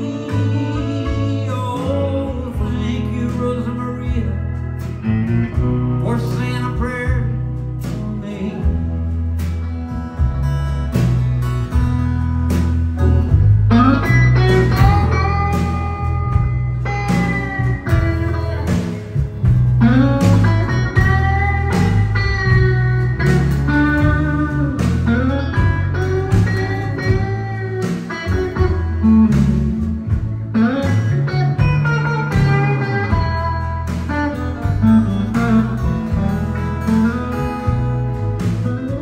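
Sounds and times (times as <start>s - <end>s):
band with bass and drums: 0.0s - 39.0s
electric guitar solo: 13.0s - 39.0s.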